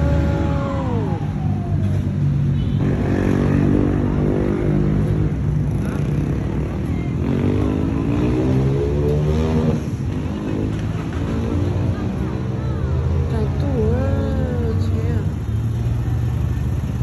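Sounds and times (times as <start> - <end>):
vehicle engines running: 0.0 - 17.0
vehicle speeding up: 2.9 - 13.6.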